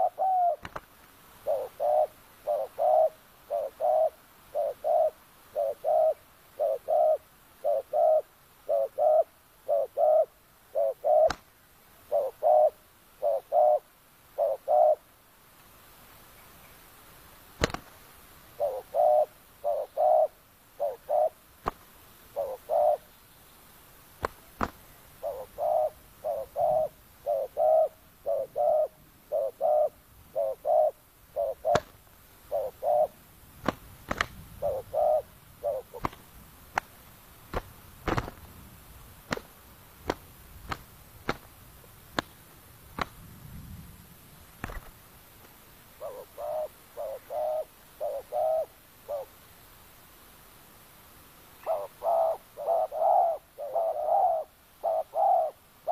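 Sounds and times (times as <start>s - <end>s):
sharp clicks of fighting doves: 0.0s - 13.8s, 17.5s - 23.1s, 24.0s - 43.4s, 44.5s - 49.2s
doves cooing: 0.0s - 15.1s, 18.5s - 23.2s, 24.1s - 43.3s, 46.0s - 49.4s, 51.6s - 55.9s.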